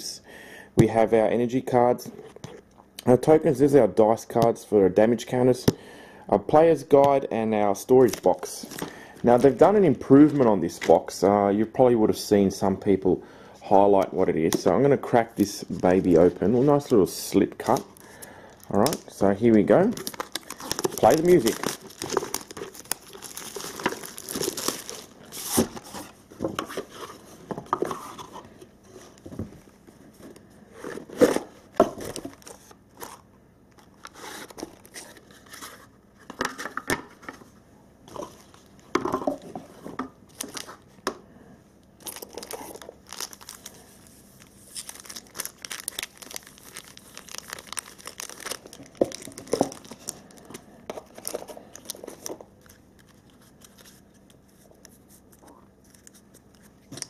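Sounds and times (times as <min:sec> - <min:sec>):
plastic packaging crinkling: 0:07.9 - 0:10.9, 0:15.4 - 0:27.2, 0:30.8 - 0:35.8, 0:40.3 - 0:40.9, 0:42.0 - 0:56.8
cardboard boxes rustling and scraping: 0:21.4 - 0:32.4.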